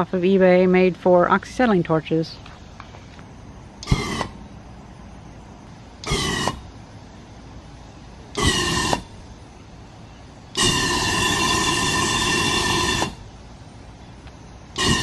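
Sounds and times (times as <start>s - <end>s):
rushing gas jet with whistle: 3.8s - 4.4s, 6.0s - 6.7s, 8.3s - 9.1s, 10.5s - 13.3s, 14.7s - 15.0s.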